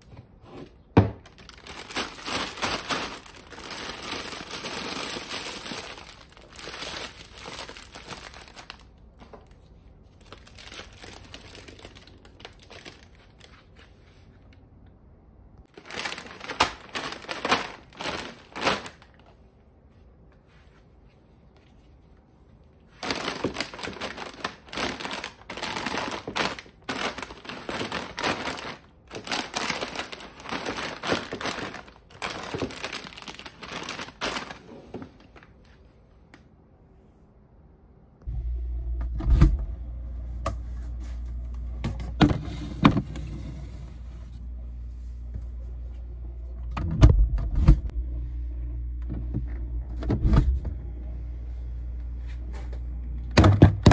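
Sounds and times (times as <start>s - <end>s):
plastic bags and packets rustling: 0.0s - 14.6s, 15.6s - 19.4s, 20.8s - 36.0s.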